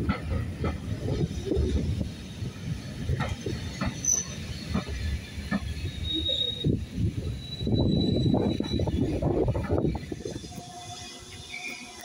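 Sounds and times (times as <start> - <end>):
wind buffeting microphone: 0.0 - 11.4
train wheels rumbling on track: 0.0 - 12.0
high wheel squeal: 3.9 - 4.8, 5.6 - 12.0.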